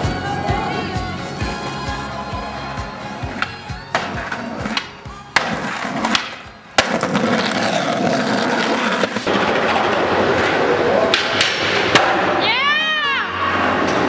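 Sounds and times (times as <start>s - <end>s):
skateboard wheels rolling on pavement: 3.1s - 14.0s
skateboards popping and landing: 3.3s - 12.7s.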